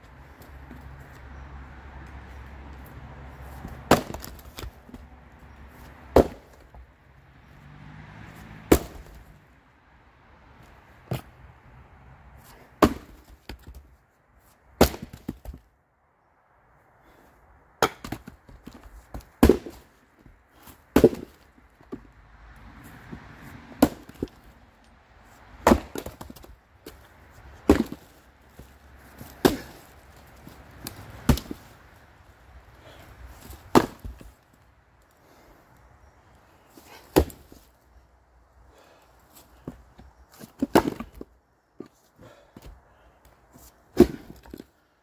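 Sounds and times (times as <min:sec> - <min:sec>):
maul chopping firewood: 0:03.5 - 0:05.1, 0:05.8 - 0:06.8, 0:08.6 - 0:09.3, 0:12.5 - 0:13.9, 0:14.7 - 0:15.6, 0:17.8 - 0:22.1, 0:23.0 - 0:24.5, 0:25.5 - 0:31.8, 0:32.8 - 0:34.4, 0:36.8 - 0:37.7, 0:38.8 - 0:44.7
split wood falling on pile: 0:27.6 - 0:28.2.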